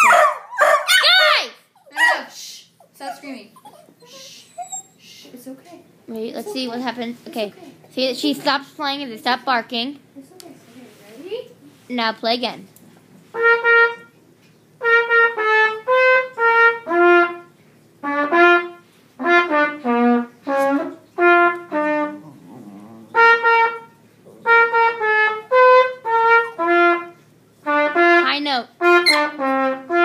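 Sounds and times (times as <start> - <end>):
trumpet playing: 13.3 - 14.2, 14.8 - 22.3, 23.1 - 30.0.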